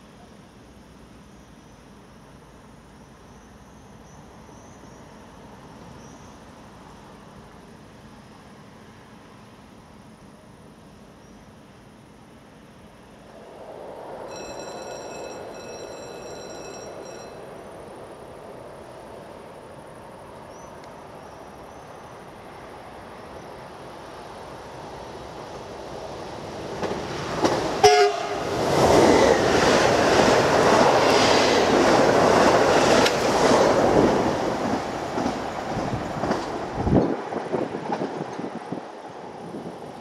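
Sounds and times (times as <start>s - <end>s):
train wheels rushing on rails: 12.5s - 40.0s
train horn blast: 27.8s - 28.5s.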